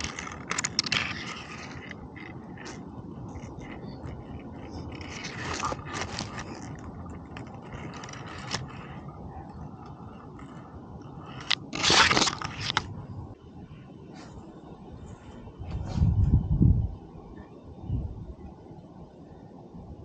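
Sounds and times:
grass stalks crunching and rustling: 0.0 - 9.1, 11.2 - 12.9
cat chewing dry grass: 0.0 - 12.9.

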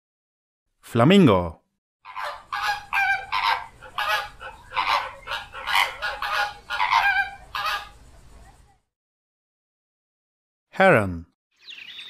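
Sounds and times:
flamingos honking calls: 2.1 - 8.1.

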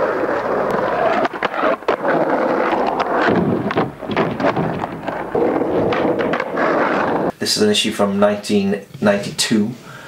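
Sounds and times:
skateboard clacking: 0.0 - 7.3
skateboard wheels rolling on asphalt: 0.0 - 7.3.

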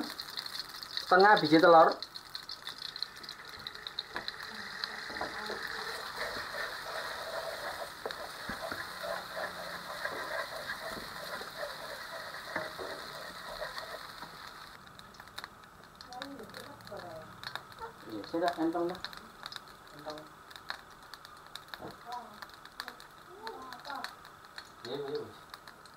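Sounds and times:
egg sizzling in hot oil: 0.0 - 25.9
wooden spatula scraping: 2.7 - 14.8.

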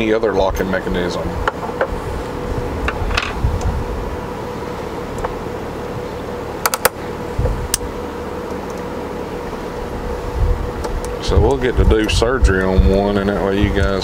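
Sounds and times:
steady background hum: 0.0 - 14.0.

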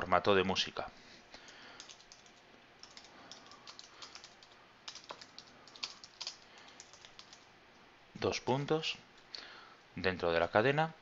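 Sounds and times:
computer keyboard keystrokes: 1.4 - 7.4.

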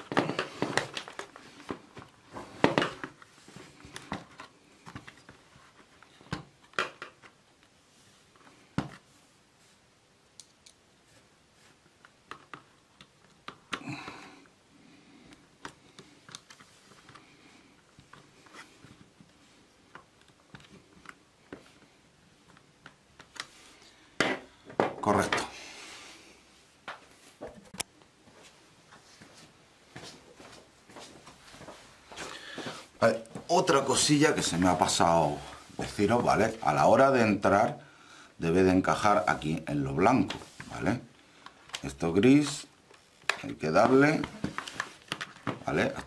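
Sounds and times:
plastic parts clicking and knocking: 6.3 - 7.4, 44.2 - 46.0.

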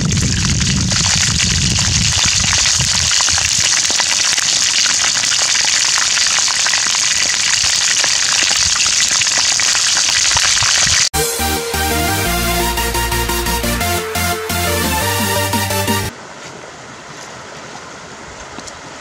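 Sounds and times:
chicken deep-frying in oil: 0.0 - 11.1.

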